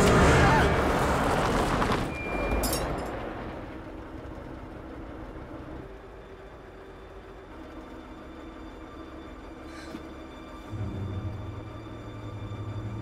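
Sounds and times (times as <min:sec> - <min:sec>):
truck engine driving away: 0:00.0 - 0:13.0.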